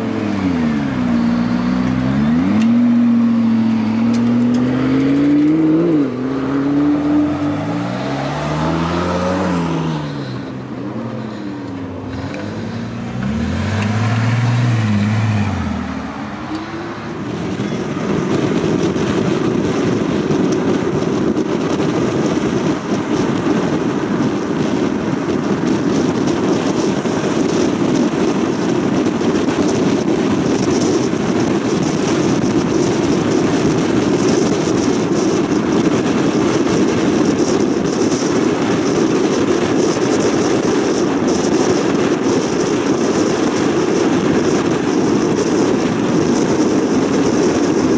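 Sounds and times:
tyre and wind noise at speed: 0:00.0 - 0:47.9
car engine passing by: 0:01.2 - 0:18.6.

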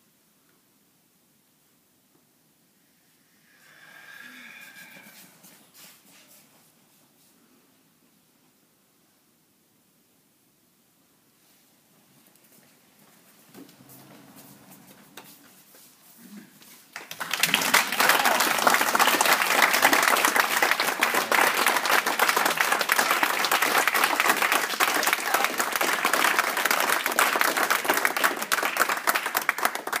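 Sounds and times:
audience applauding: 0:16.9 - 0:30.0.

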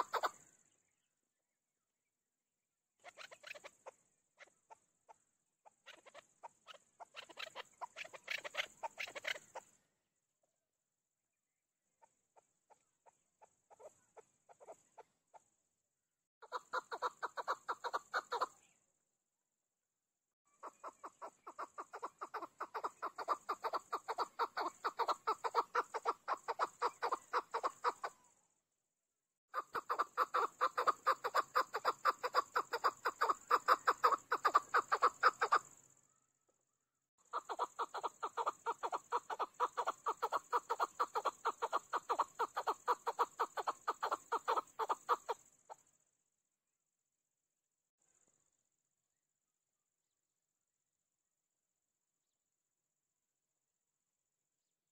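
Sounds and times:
partridge calling chuk notes: 0:00.0 - 0:00.4, 0:05.8 - 0:09.7, 0:16.4 - 0:18.6, 0:20.6 - 0:28.2, 0:29.6 - 0:35.7, 0:37.3 - 0:45.4.

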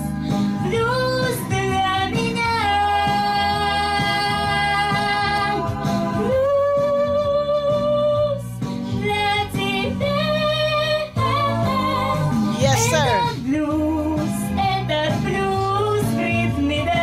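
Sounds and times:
girl singing blues: 0:12.4 - 0:13.6
instrumental backing: 0:12.5 - 0:13.4.

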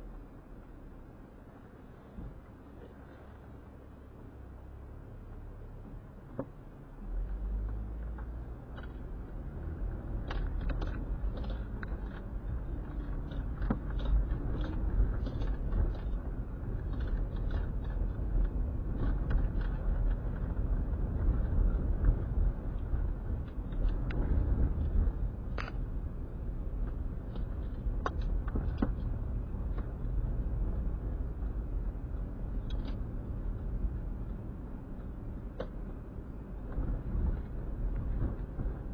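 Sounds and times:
car engine and tyre rumble: 0:00.0 - 0:38.9.

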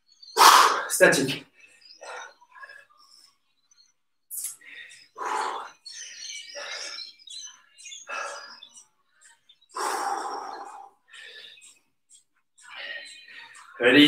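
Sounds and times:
person breathing hard: 0:00.4 - 0:00.9, 0:04.6 - 0:05.9, 0:08.1 - 0:08.6, 0:09.7 - 0:11.7.

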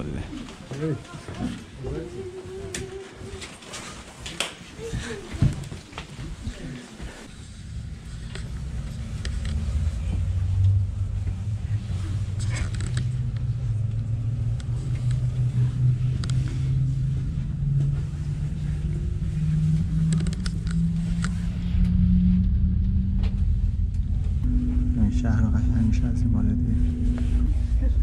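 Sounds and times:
cable car cabin rumbling: 0:07.3 - 0:28.0
low hum rising in pitch: 0:07.3 - 0:28.0.

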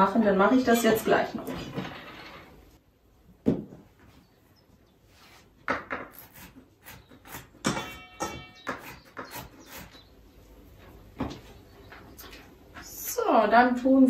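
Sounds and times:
knife chopping on wooden board: 0:05.7 - 0:09.9.

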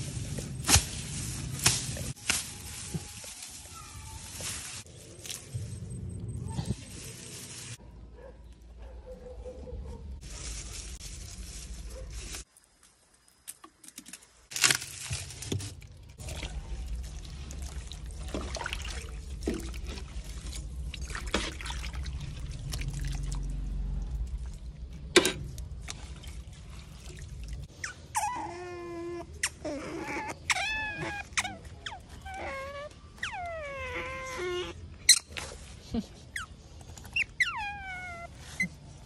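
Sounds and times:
liquid sloshing in metal pot: 0:16.2 - 0:27.7
animal whining: 0:27.8 - 0:35.3, 0:36.4 - 0:38.9.

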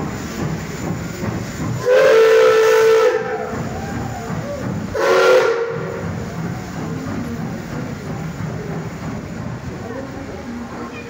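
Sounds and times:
steam hissing: 0:00.0 - 0:11.0
steam locomotive whistle: 0:01.8 - 0:06.1.

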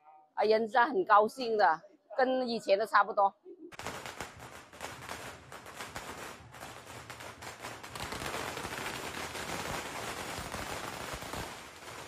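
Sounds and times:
firecrackers crackling: 0:03.7 - 0:12.0.

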